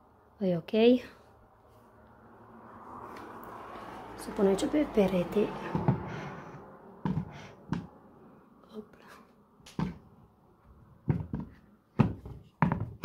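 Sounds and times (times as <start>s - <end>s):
picture frame knocking on wall: 7.0s - 7.9s, 9.8s - 10.1s, 11.0s - 13.0s.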